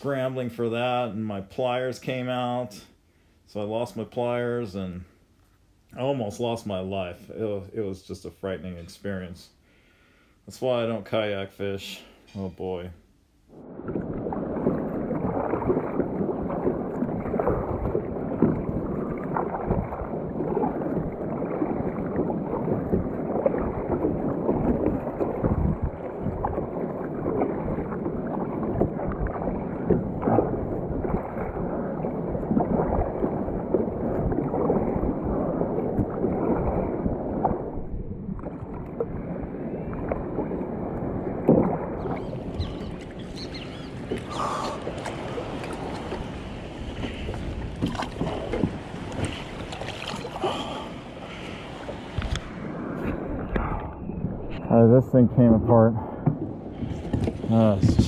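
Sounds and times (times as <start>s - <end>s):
paddle blades splashing: 13.5s - 58.0s
water sloshing along plastic hull: 13.5s - 58.0s.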